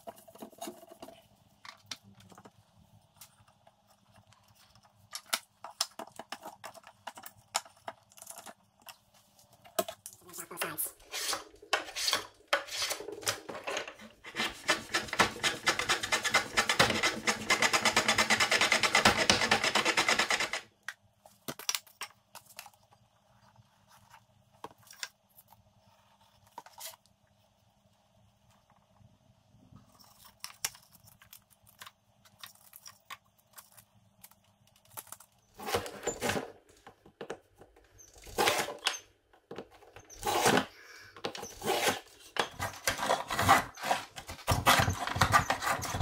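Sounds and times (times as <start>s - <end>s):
hand plane shaving a board: 14.2s - 18.7s.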